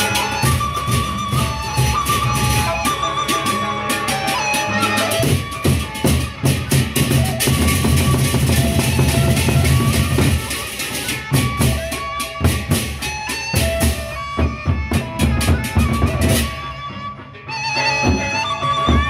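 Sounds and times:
barrel drums beaten with sticks: 5.2 - 16.5.

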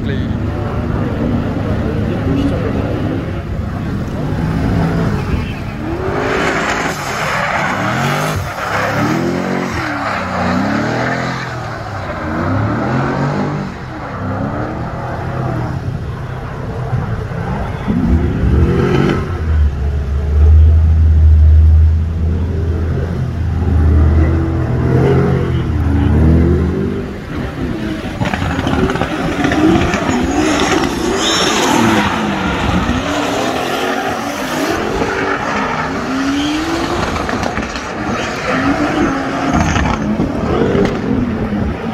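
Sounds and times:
car engines revving: 0.0 - 41.9
tyre squeal: 28.3 - 40.2.

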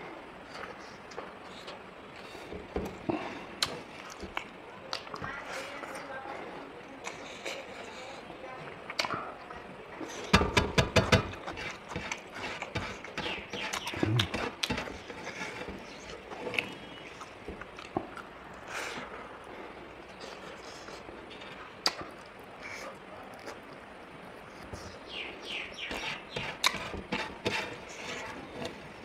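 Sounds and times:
mouth clicking and smacking: 13.7 - 14.7, 21.8 - 22.4
person chewing chicken wings: 13.7 - 14.7.

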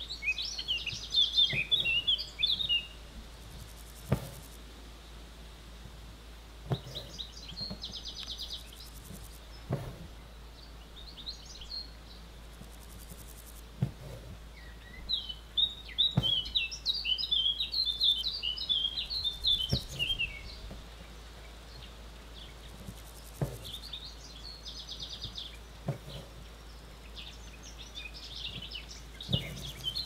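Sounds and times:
small birds chirping: 0.0 - 5.2, 6.6 - 30.0
soft low knocks: 5.8 - 10.3, 22.7 - 23.9, 28.4 - 30.0.

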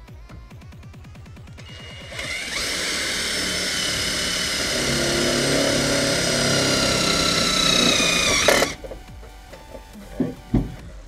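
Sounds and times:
cordless drill whining: 1.6 - 9.0.

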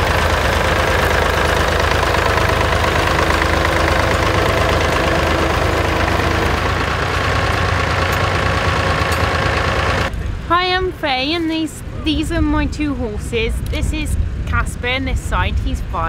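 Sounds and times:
tractor engine running: 0.0 - 10.1.

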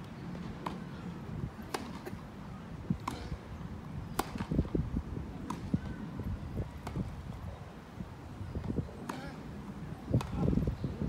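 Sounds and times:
low crowd noise: 0.0 - 11.0
tennis balls struck by racquets: 1.6 - 2.2, 2.9 - 3.4, 4.1 - 4.7, 5.4 - 5.9, 8.6 - 9.4, 10.1 - 10.5.

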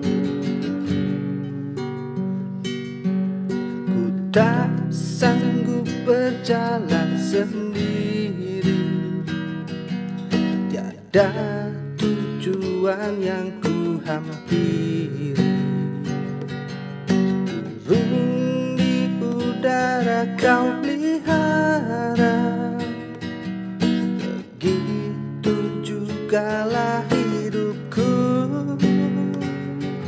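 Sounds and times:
strummed acoustic guitar: 0.0 - 30.0
person singing: 3.9 - 9.5, 10.7 - 16.1, 17.6 - 23.4, 24.2 - 30.0.

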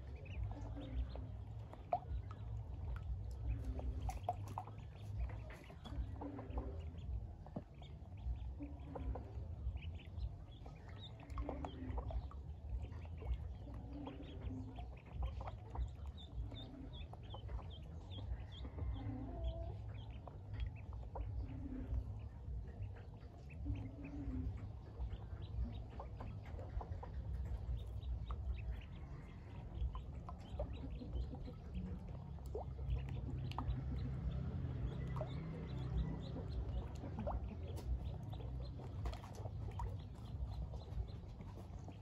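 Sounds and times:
ducklings peeping: 0.0 - 42.0.

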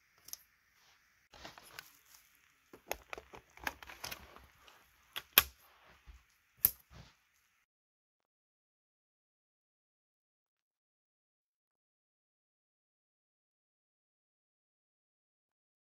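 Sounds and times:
fingers handling plastic parts: 1.5 - 5.6
plastic parts knocking: 2.7 - 4.6.

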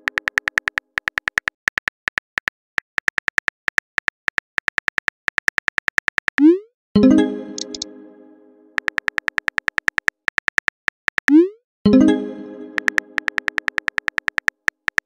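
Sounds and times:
phone keyboard clicks: 0.0 - 6.4, 7.6 - 7.8, 8.8 - 11.4, 12.8 - 15.0.

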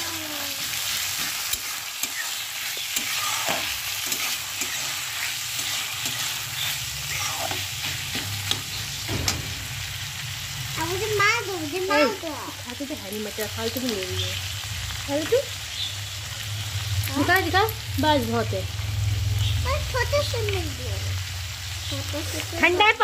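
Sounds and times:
vegetables sizzling in oil: 0.0 - 23.0
metal spatula scraping a pan: 0.6 - 9.8.

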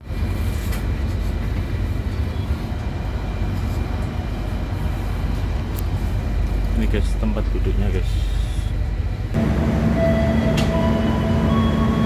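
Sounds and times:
train carriage rumble and hum: 0.0 - 12.0
brief click: 10.5 - 10.8.

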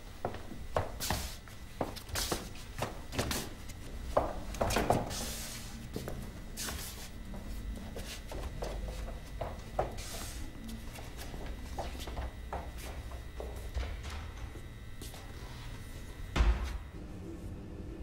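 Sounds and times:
footsteps on hard floor: 0.2 - 16.9
shoe soles scraping: 0.8 - 13.7.

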